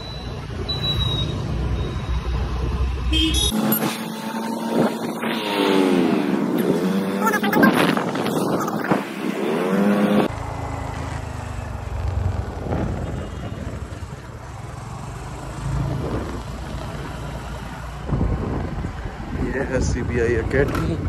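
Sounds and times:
road noise: 0:00.0 - 0:21.0
scooter engine droning: 0:00.5 - 0:19.0
wind rushing over microphone: 0:04.0 - 0:10.3, 0:12.3 - 0:14.5, 0:15.8 - 0:21.0.

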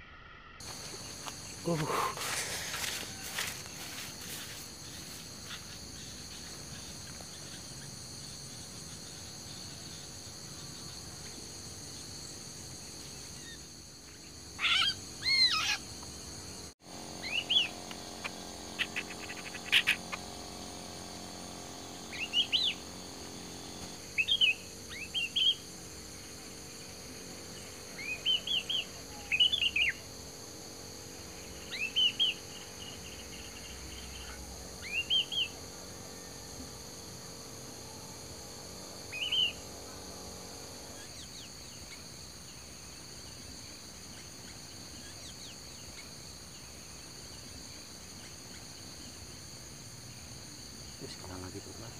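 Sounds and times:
bird whistled calls: 0:17.2 - 0:17.7.

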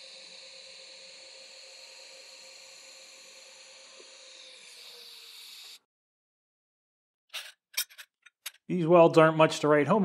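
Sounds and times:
welding arc hissing: 0:00.0 - 0:05.8.

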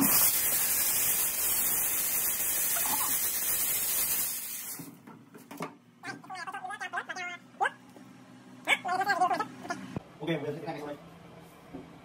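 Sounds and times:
water spray hissing: 0:00.0 - 0:04.8.

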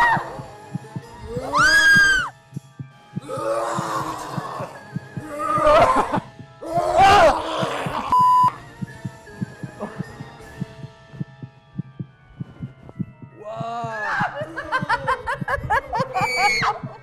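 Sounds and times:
music with heartbeat-like pulse: 0:00.0 - 0:17.0
people screaming in fright: 0:01.4 - 0:02.3, 0:06.8 - 0:08.1, 0:16.0 - 0:17.0
censor bleep: 0:08.1 - 0:08.5.

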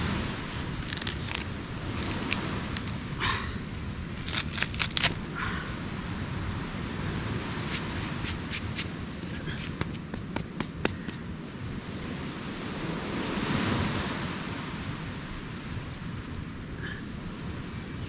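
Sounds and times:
wind: 0:00.0 - 0:18.0
coconut husk tearing and cracking: 0:00.4 - 0:03.2, 0:04.1 - 0:05.3.

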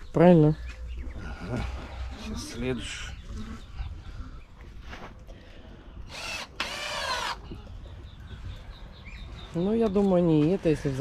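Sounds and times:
cordless drill driving screw: 0:06.1 - 0:07.4.

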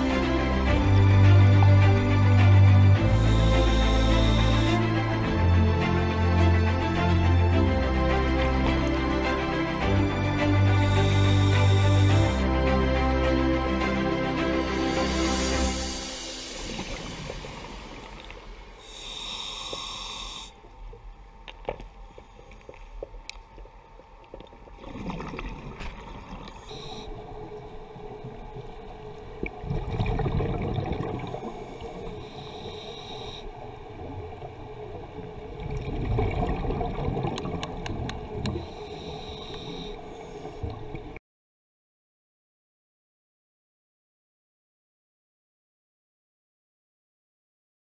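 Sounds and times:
regulator inhalation hiss: 0:03.0 - 0:05.1, 0:10.6 - 0:12.5, 0:14.8 - 0:20.6, 0:26.5 - 0:27.2, 0:31.4 - 0:33.6, 0:38.5 - 0:40.7
gurgling exhaled bubbles: 0:29.2 - 0:32.2, 0:35.4 - 0:38.8.

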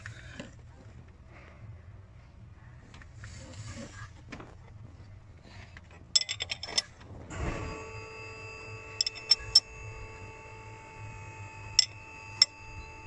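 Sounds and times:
ratchet wrench clicking: 0:09.0 - 0:09.7, 0:11.8 - 0:12.6.

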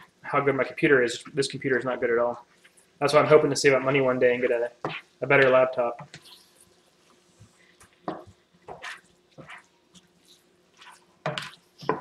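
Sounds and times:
spatula scraping food in frying pan: 0:04.8 - 0:12.0.

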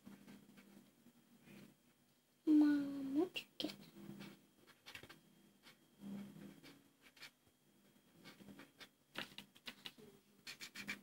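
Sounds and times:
low steady hum: 0:00.0 - 0:11.0
marker scratching on paper: 0:04.0 - 0:07.4, 0:08.2 - 0:11.0.

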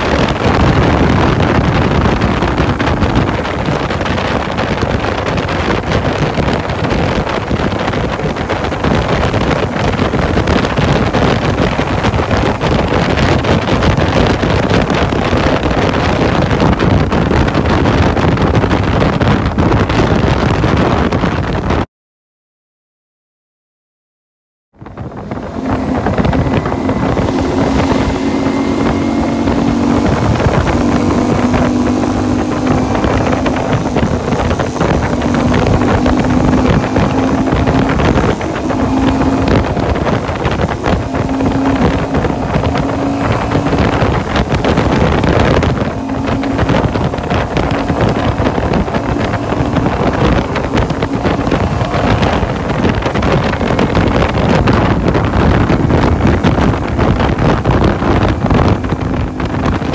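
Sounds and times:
wind rush on microphone: 0:00.0 - 0:21.9, 0:24.7 - 0:59.9
motorcycle engine under load: 0:24.8 - 0:59.9.

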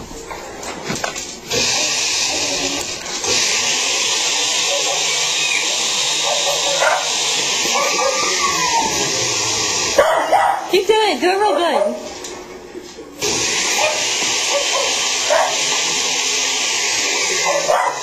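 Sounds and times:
blender motor running: 0:01.5 - 0:10.0, 0:13.2 - 0:18.0.

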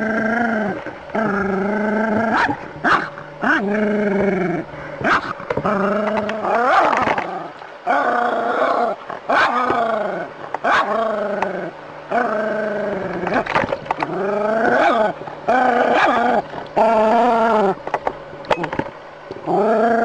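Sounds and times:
dog barking and howling: 0:02.2 - 0:03.8, 0:05.0 - 0:07.3, 0:07.9 - 0:11.0, 0:14.6 - 0:17.8.

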